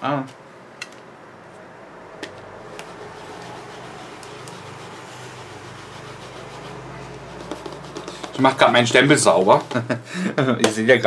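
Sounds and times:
rubber stamp being scrubbed: 0:02.6 - 0:09.9.

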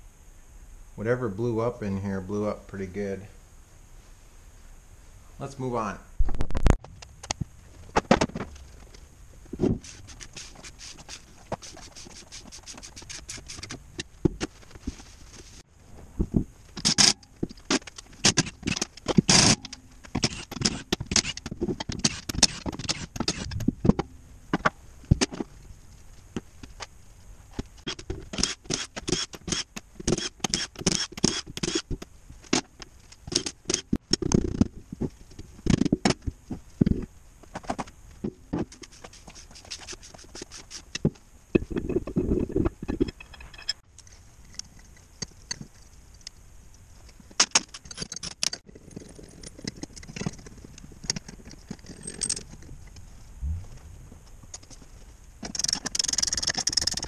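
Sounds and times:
metal parts clinking: 0:42.8 - 0:43.8, 0:51.1 - 0:52.7.

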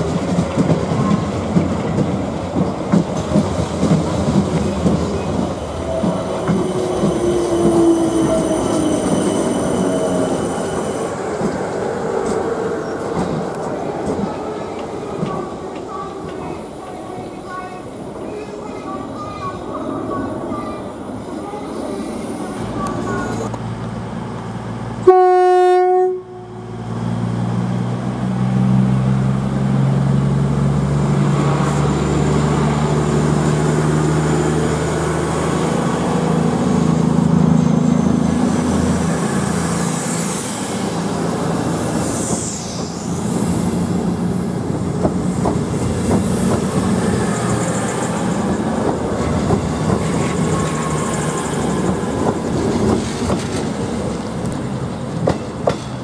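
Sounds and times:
train passing with low drone: 0:00.0 - 0:56.0
train horn blast: 0:25.0 - 0:26.7.

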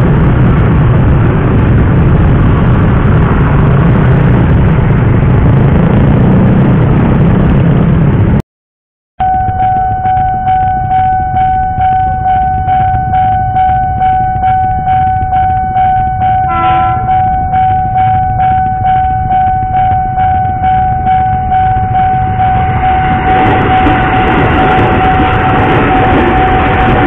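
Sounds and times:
train rumble: 0:00.0 - 0:08.4, 0:09.2 - 0:27.0
level crossing bell ringing: 0:09.2 - 0:27.0
steady warning tone: 0:09.2 - 0:27.0
train horn blast: 0:11.8 - 0:27.0.

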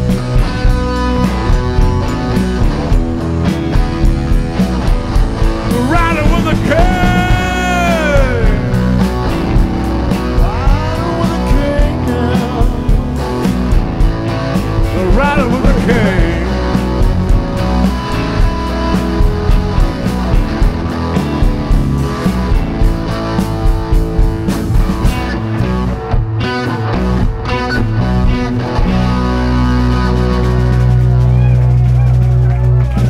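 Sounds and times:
bass guitar: 0:00.0 - 0:33.0
drum kit steady beat: 0:00.0 - 0:33.0
electric guitar lead with bending notes: 0:00.0 - 0:33.0.

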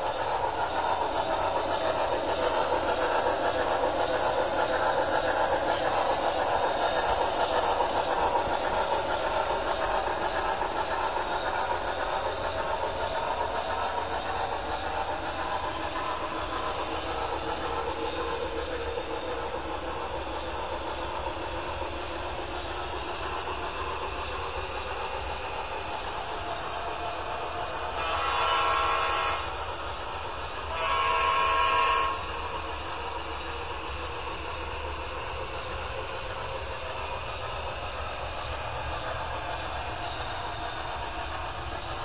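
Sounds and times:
model train running noise: 0:00.0 - 0:42.0
model locomotive horn chord: 0:28.0 - 0:29.5, 0:30.7 - 0:32.3.

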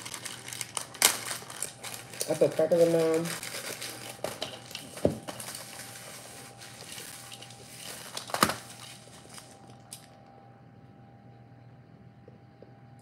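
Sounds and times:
crackers being crushed: 0:00.0 - 0:10.1.

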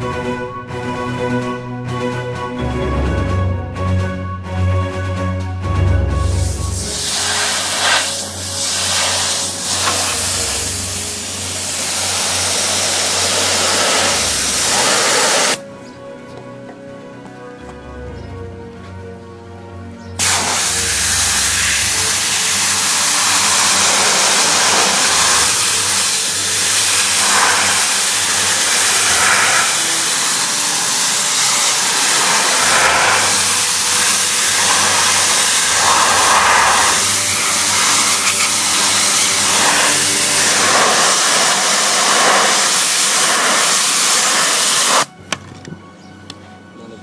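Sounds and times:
pressure washer jet hissing: 0:06.3 - 0:15.6, 0:20.2 - 0:45.1
pressure washer motor running: 0:06.4 - 0:15.6, 0:20.2 - 0:45.1.

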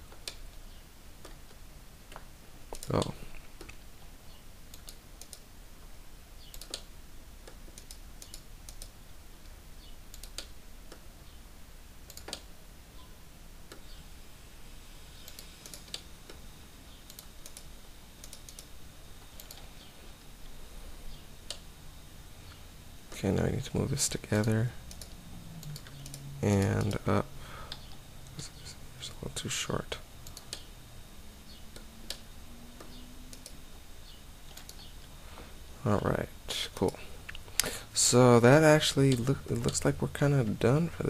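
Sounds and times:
low steady hum: 0:00.0 - 0:41.0
keyboard and mouse clicks: 0:01.2 - 0:03.8, 0:04.7 - 0:05.4, 0:06.4 - 0:09.0, 0:10.1 - 0:11.0, 0:12.1 - 0:12.5, 0:15.2 - 0:16.4, 0:17.1 - 0:18.7, 0:19.4 - 0:19.6, 0:24.4 - 0:27.0, 0:30.2 - 0:30.7, 0:32.8 - 0:33.6, 0:34.5 - 0:34.9.

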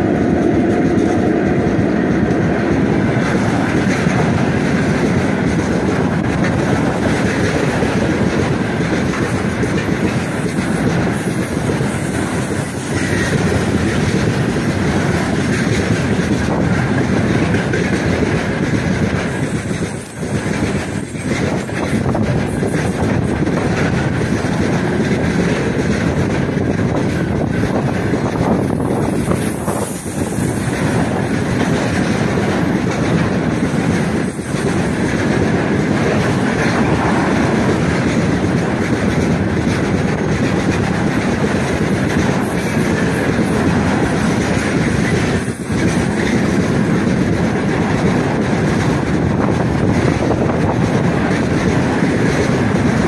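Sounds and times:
steel wheels running on rails: 0:00.0 - 0:53.0.

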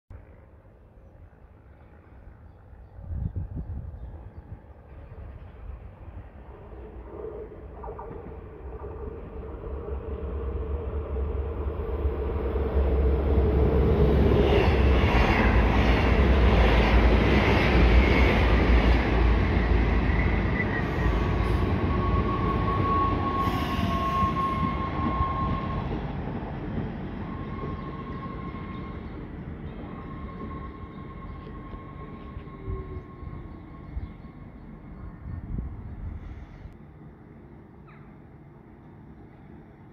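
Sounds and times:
train rumbling along platform: 0:00.2 - 0:39.9
high brake squeal: 0:20.5 - 0:25.8.

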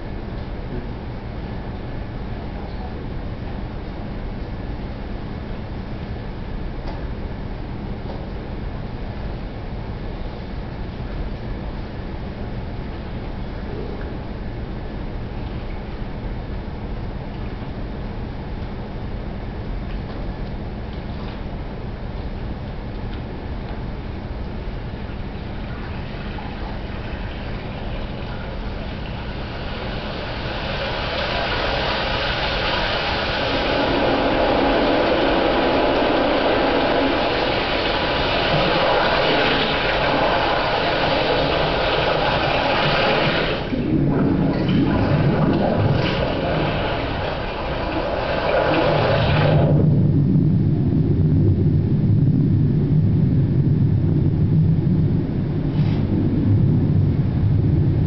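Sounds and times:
steady low rumble: 0:00.0 - 0:58.0
film soundtrack rushing noise: 0:25.1 - 0:58.0.

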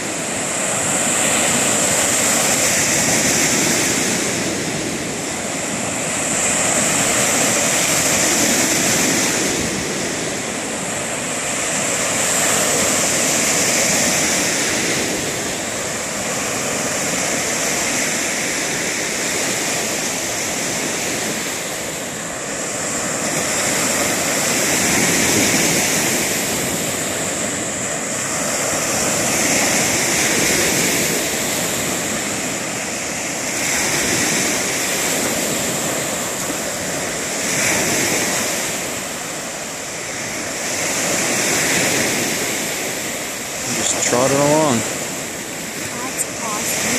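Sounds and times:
waves breaking on sandy shore: 0:00.0 - 0:46.9.

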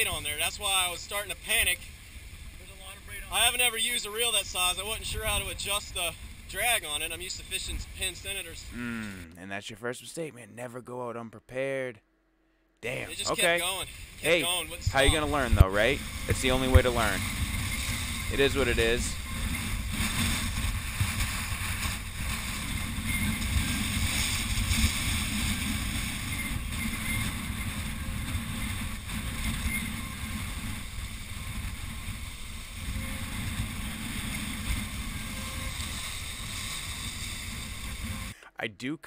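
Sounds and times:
wind buffeting microphone: 0:13.9 - 0:38.3.

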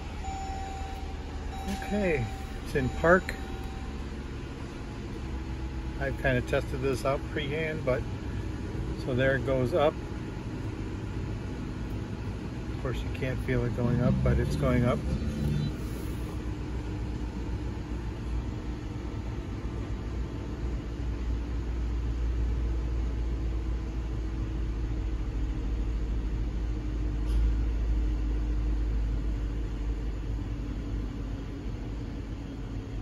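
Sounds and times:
air compressor humming: 0:00.0 - 0:09.0, 0:10.2 - 0:20.0
car engine idling: 0:00.0 - 0:33.0.

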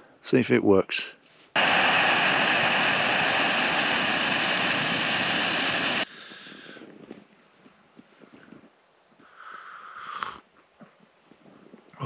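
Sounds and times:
gas stove roaring: 0:01.6 - 0:06.1.

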